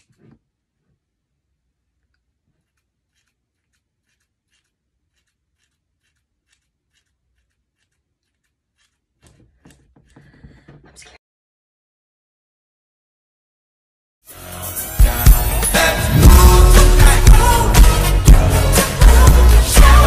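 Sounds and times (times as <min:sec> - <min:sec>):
scissors snipping hair: 0:02.6 - 0:10.2.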